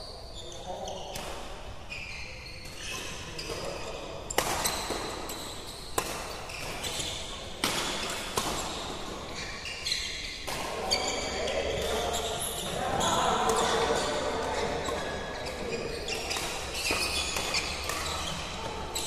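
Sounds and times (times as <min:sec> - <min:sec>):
shoes squeaking on court: 0:01.9 - 0:07.3, 0:07.9 - 0:19.0
racquets hitting shuttlecock: 0:04.3 - 0:09.3, 0:13.4 - 0:19.0.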